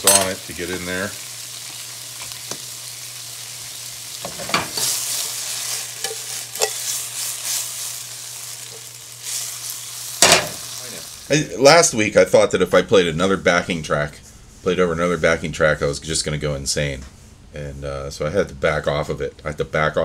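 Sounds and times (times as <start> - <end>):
food sizzling in frying pan: 0.0 - 11.9.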